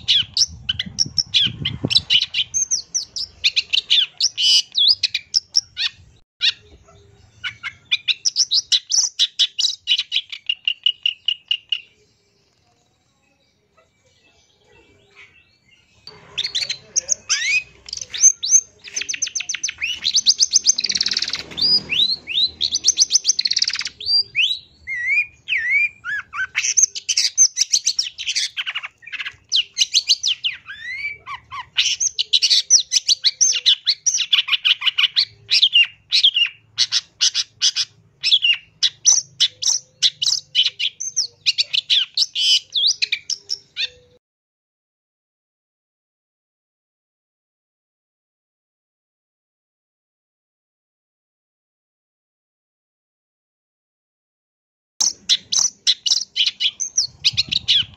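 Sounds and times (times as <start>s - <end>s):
bird singing fast chatter: 0.0s - 13.7s, 14.6s - 44.2s, 55.0s - 57.9s.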